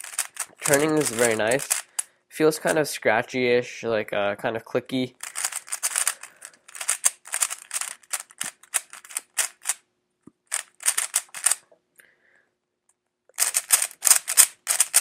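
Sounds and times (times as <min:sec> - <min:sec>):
plastic puzzle cube clicking turns: 0:00.0 - 0:02.1, 0:05.2 - 0:09.8, 0:10.5 - 0:11.6, 0:13.4 - 0:15.0.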